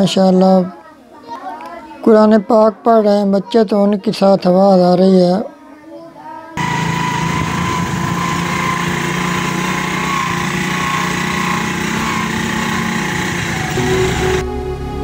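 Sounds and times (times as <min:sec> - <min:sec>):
small motorcycle engine running: 0:06.6 - 0:14.4.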